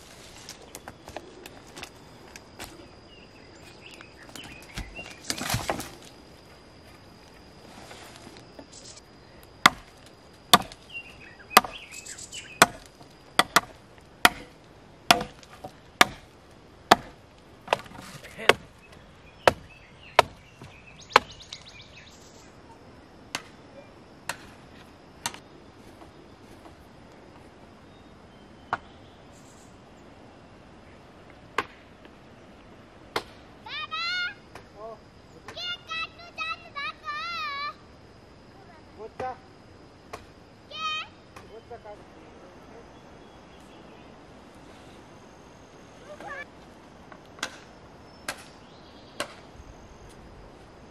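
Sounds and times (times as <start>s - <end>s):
dry branches rustling: 0.0s - 22.6s
blade chopping wood: 4.4s - 6.1s, 9.6s - 10.8s, 11.5s - 11.9s, 12.6s - 16.3s, 16.9s - 18.7s, 48.3s - 48.5s.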